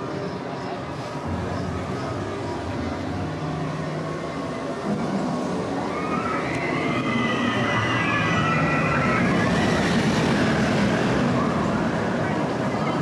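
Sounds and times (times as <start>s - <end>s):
roller coaster rumbling past: 1.2s - 13.0s
riders screaming: 5.9s - 10.2s.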